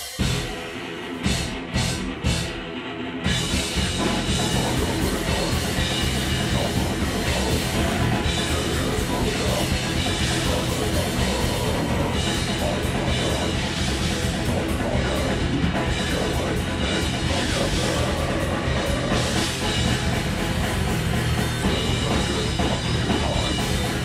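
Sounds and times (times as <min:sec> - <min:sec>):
heavy metal band playing: 0:00.0 - 0:24.0.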